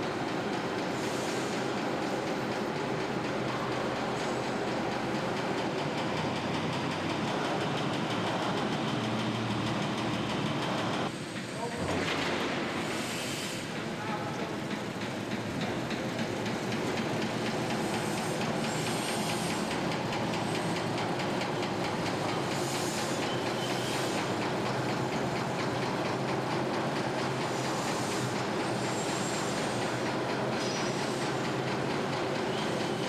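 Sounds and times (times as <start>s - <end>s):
brief hisses: 12.6s - 13.8s.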